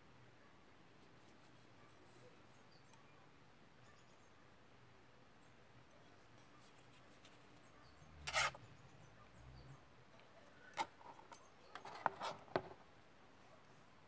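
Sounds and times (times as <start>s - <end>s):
knife handling rub: 8.3s - 8.6s.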